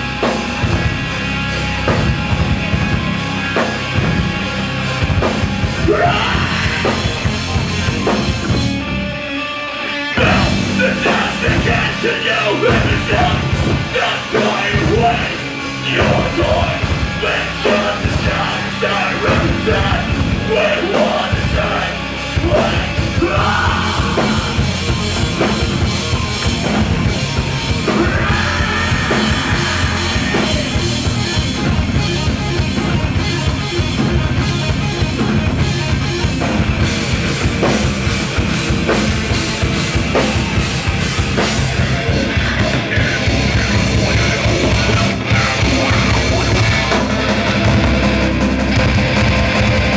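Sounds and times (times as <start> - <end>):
bass guitar: 0.0 - 49.9
distorted electric guitars: 0.0 - 49.9
shouted vocals: 5.8 - 7.3, 10.2 - 24.9, 27.7 - 31.1.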